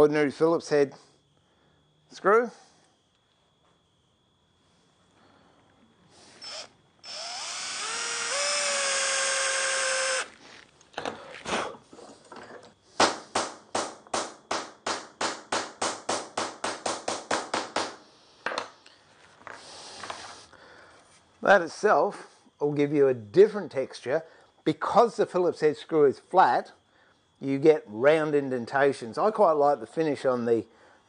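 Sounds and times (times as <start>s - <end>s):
cordless drill whining: 6.4s - 10.4s
knocks: 13.0s - 18.7s.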